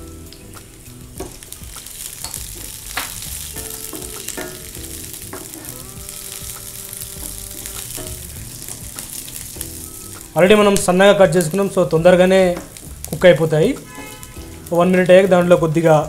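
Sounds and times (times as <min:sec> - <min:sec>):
vegetables sizzling in hot oil: 0:00.0 - 0:16.0
spatula knocking against pan: 0:01.2 - 0:06.6, 0:07.2 - 0:09.2.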